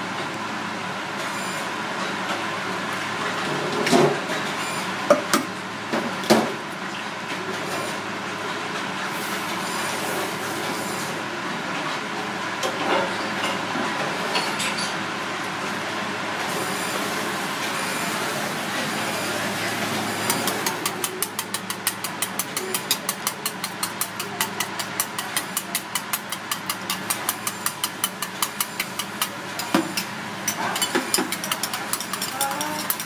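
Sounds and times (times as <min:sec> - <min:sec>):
steady background hum: 0:00.0 - 0:33.0
whisk clicking against steel bowl: 0:20.3 - 0:33.0.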